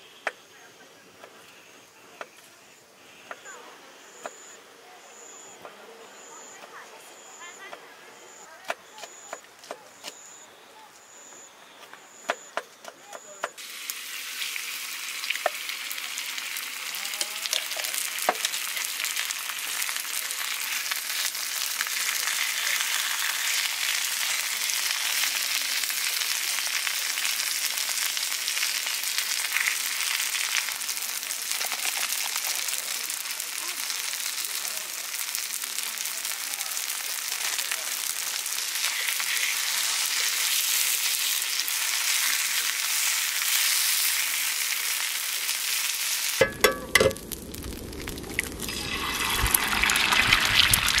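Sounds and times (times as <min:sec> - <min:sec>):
cabbage sizzling on griddle: 0:13.2 - 0:51.0.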